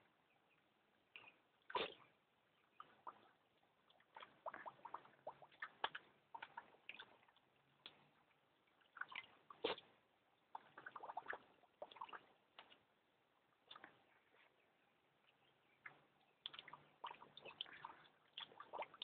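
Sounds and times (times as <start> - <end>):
dog splashing in water bowl: 4.0 - 12.8, 16.5 - 19.0.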